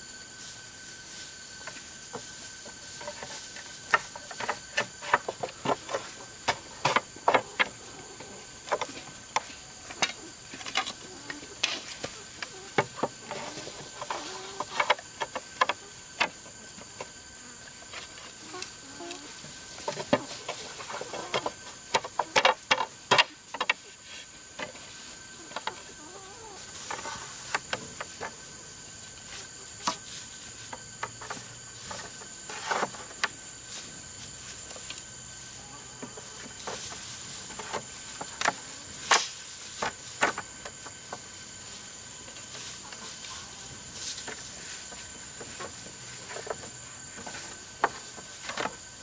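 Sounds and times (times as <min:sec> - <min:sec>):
bamboo poles knocking: 0:01.6 - 0:17.2, 0:17.9 - 0:23.8, 0:36.0 - 0:41.3, 0:44.2 - 0:48.8
chicken clucking: 0:02.6 - 0:22.6, 0:25.3 - 0:27.7.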